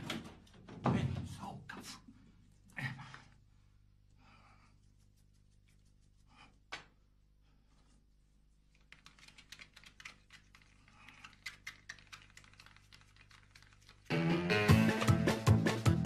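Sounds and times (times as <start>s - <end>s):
loud upbeat music: 14.1s - 16.0s.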